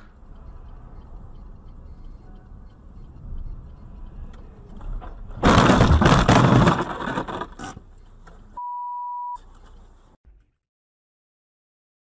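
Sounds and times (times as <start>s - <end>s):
vehicle crash crunching and scraping: 4.8s - 7.9s
debris hitting windshield: 5.4s - 7.7s.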